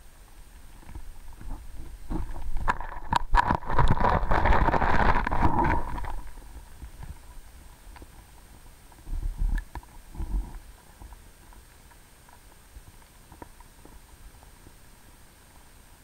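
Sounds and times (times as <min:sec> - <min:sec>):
underwater clicking and knocking: 0:00.6 - 0:08.2.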